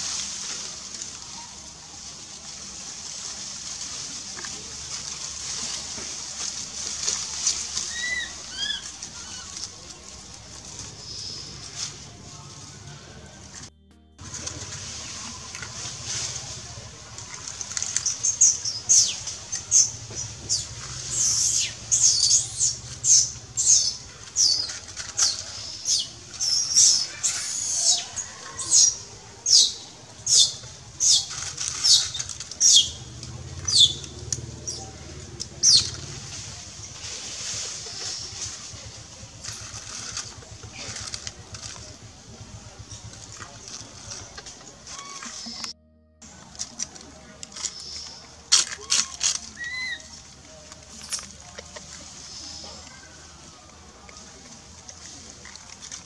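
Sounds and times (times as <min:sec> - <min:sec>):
baby monkey squealing: 0:07.9 - 0:09.5, 0:20.5 - 0:24.6, 0:25.2 - 0:29.7, 0:49.6 - 0:50.1.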